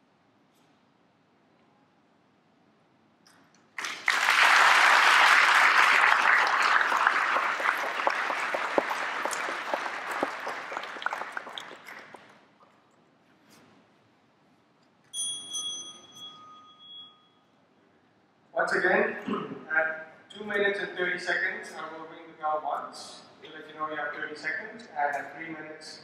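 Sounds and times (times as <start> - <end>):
audience applauding: 3.8 - 12.4.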